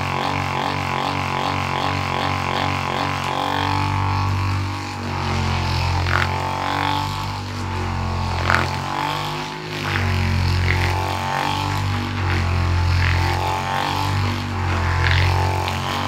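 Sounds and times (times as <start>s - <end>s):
massage gun motor hum: 0.0s - 16.0s.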